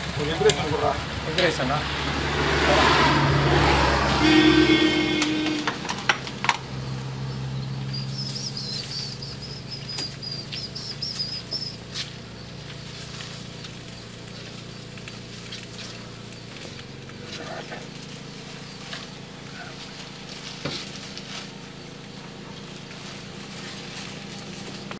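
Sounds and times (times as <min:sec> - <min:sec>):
bird chirping: 0:04.5 - 0:20.3.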